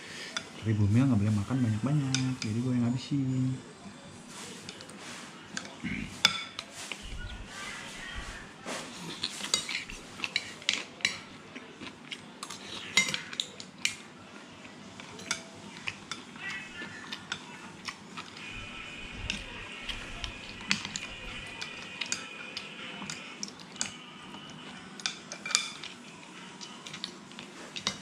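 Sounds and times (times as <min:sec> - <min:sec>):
cutlery clinking on ceramic plate: 0:25.0 - 0:26.0.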